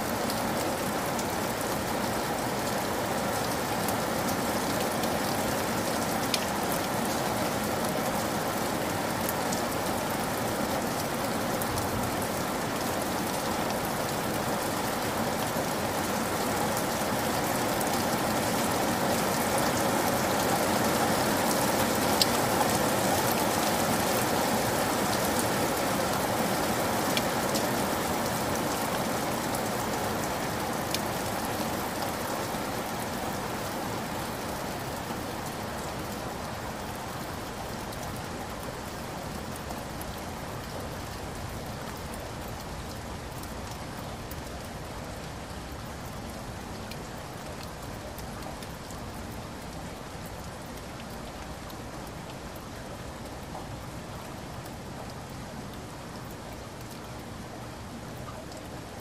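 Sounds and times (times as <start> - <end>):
heavy rain splashing: 0.0 - 59.0.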